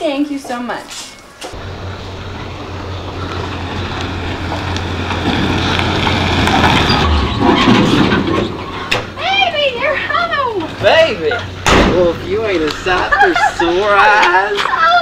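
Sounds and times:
pickup truck engine running: 1.6 - 13.5.

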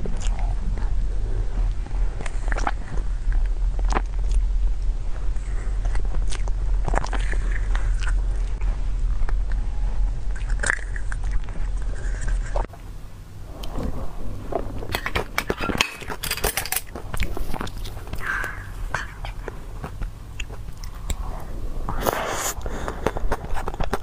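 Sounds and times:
wet chewing and smacking: 0.0 - 1.0, 1.6 - 9.7, 10.3 - 12.7, 16.9 - 21.2
low hum: 0.0 - 24.0.

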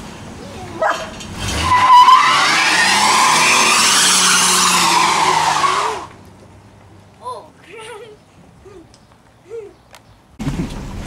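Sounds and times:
tyres squealing in a burnout: 0.8 - 6.1.

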